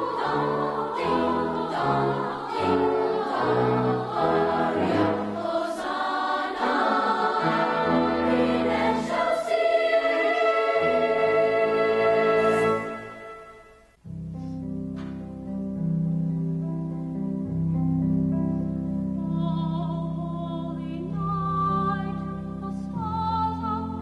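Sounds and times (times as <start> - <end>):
choir singing: 0.0 - 13.8.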